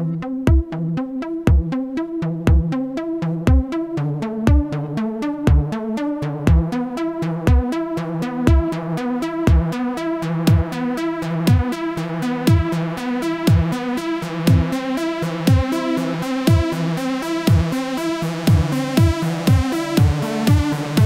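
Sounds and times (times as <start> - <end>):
sustained synth chords: 0.0 - 21.0
deep kick drum: 0.4 - 0.9, 1.5 - 1.8, 2.4 - 2.8, 3.4 - 3.8, 4.5 - 4.8, 5.5 - 5.8, 6.4 - 6.8, 7.4 - 7.8, 8.5 - 8.8, 9.5 - 9.8, 10.5 - 10.8, 11.5 - 11.7, 12.5 - 12.8, 13.5 - 13.8, 14.5 - 14.8, 15.5 - 16.9, 17.5 - 17.8, 18.5 - 21.0.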